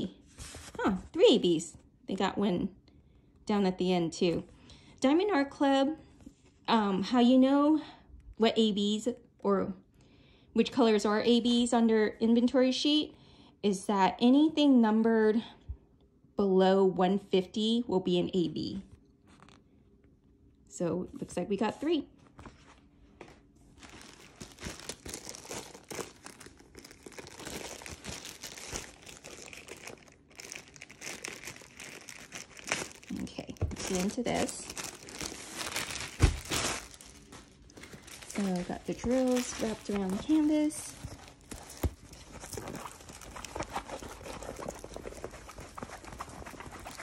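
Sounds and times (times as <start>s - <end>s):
plastic bag crinkling: 23.6s - 47.0s.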